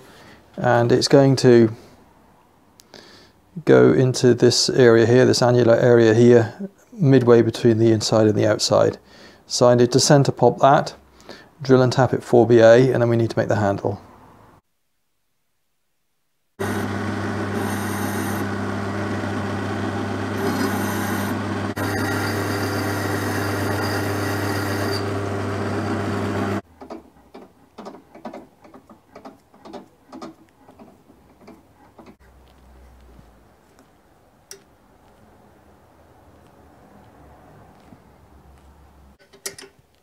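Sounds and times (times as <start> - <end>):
drill bit cutting hiss: 16.6 - 18.6, 20.4 - 26.6
pillar drill motor hum: 16.6 - 26.6.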